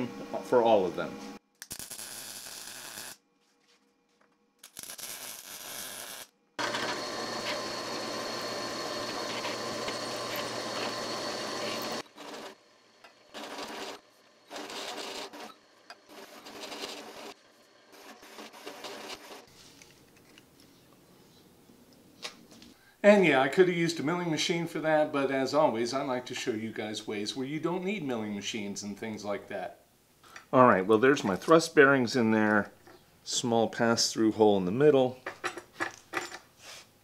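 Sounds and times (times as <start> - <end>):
low motor hum: 6.6 - 12.1
bursts of drilling noise: 6.6 - 12.6
drill bit cutting steel: 6.6 - 12.6.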